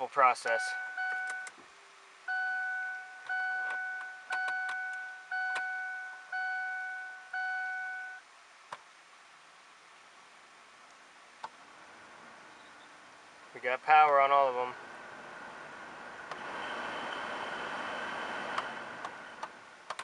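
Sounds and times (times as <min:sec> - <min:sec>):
dashboard warning chime: 0:00.4 - 0:01.5, 0:02.3 - 0:08.2.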